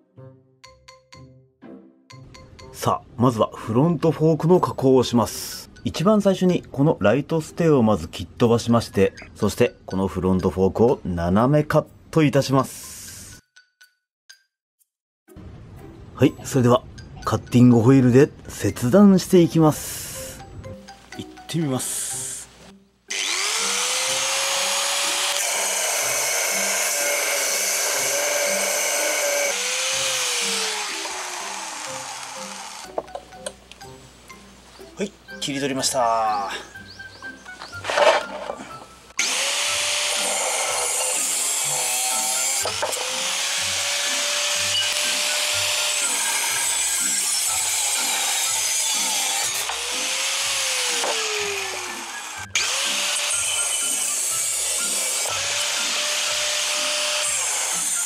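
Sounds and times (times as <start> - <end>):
angle grinder cutting metal tube: 23.1 - 33.0, 37.8 - 38.6, 39.2 - 58.0.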